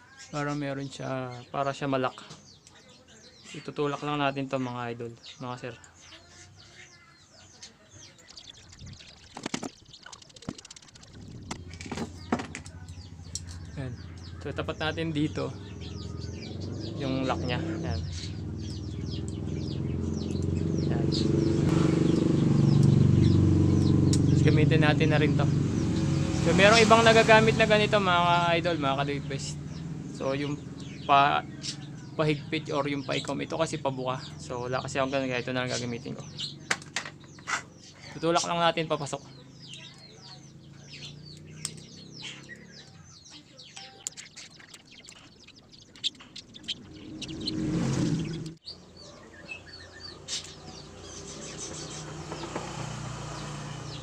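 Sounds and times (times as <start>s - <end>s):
birds chirping: 0.0s - 54.0s
vehicle engine running: 8.3s - 38.1s, 39.1s - 43.4s, 44.6s - 48.6s, 49.4s - 54.0s.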